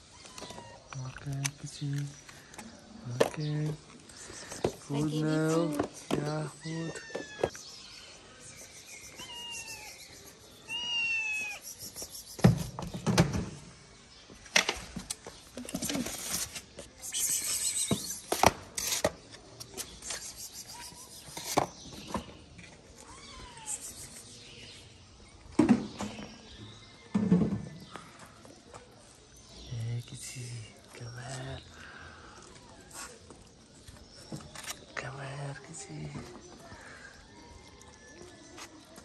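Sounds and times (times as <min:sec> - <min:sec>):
cats meowing: 0:00.0 - 0:01.0, 0:05.1 - 0:07.6, 0:09.0 - 0:11.8, 0:23.0 - 0:24.2.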